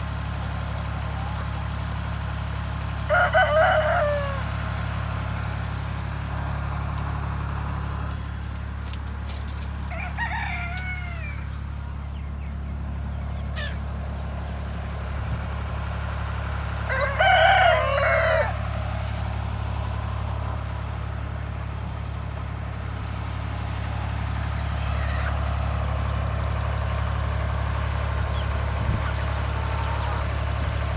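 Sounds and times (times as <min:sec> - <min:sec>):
chickens calling: 0:00.0 - 0:30.9
low engine hum: 0:00.0 - 0:30.9
rooster crowing: 0:03.0 - 0:04.6, 0:09.8 - 0:11.6, 0:16.8 - 0:18.8.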